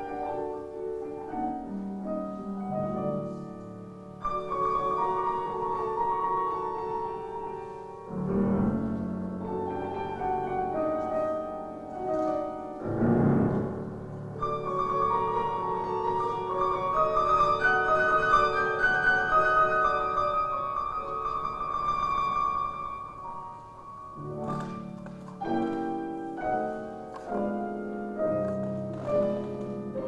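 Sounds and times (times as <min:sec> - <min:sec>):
deep bass piano chords: 0:00.0 - 0:30.0
piano duet: 0:00.0 - 0:30.0.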